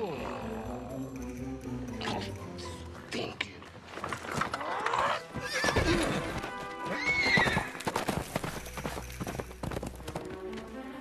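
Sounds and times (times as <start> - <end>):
film score music: 0.0 - 11.0
hooves clopping: 3.8 - 11.0
horse whinnying: 4.6 - 7.8.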